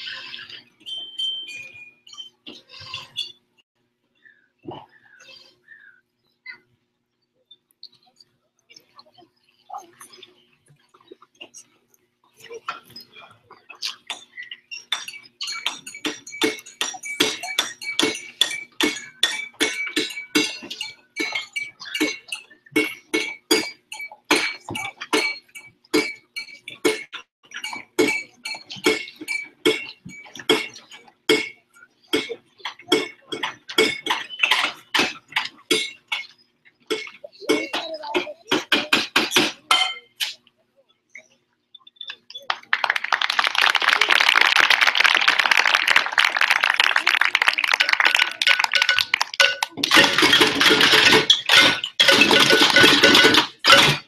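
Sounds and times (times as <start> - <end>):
wheelbarrows clanking: 0.0 - 3.6, 9.7 - 40.4, 45.0 - 54.0
steady ringing tone: 0.9 - 2.9, 14.1 - 31.9.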